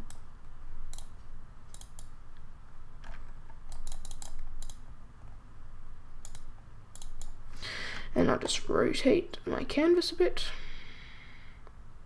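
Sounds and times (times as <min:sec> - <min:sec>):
faint low hum: 0:00.0 - 0:12.0
computer control clicks: 0:00.9 - 0:02.1, 0:03.7 - 0:04.8, 0:06.2 - 0:07.4.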